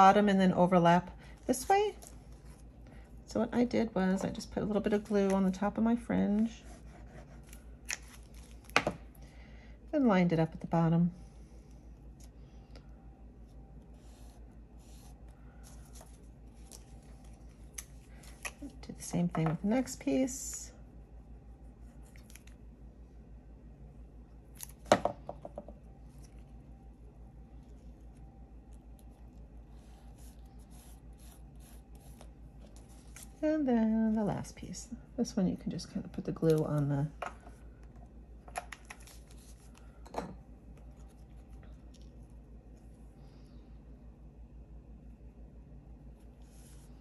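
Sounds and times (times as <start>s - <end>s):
low steady hum: 0.0s - 47.0s
paper rustling and rubbing: 6.3s - 8.7s, 13.9s - 18.7s, 28.8s - 33.4s, 38.9s - 39.8s.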